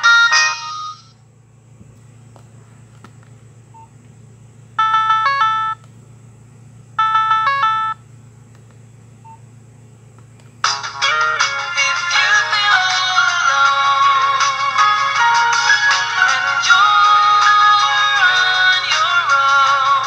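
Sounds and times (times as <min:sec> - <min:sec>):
polyphonic ringtone: 0:00.0 - 0:01.1, 0:04.8 - 0:05.8, 0:07.0 - 0:08.0
short electronic tone melody: 0:00.0 - 0:01.1.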